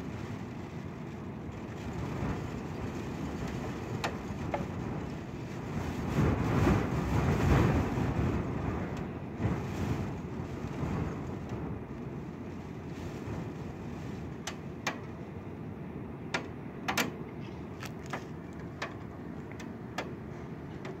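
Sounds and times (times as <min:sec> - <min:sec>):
wind and rain rushing: 0:00.0 - 0:21.0.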